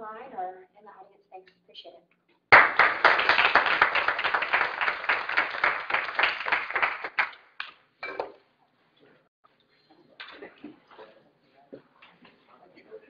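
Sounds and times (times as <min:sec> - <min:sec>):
audience applauding: 0:02.5 - 0:07.7.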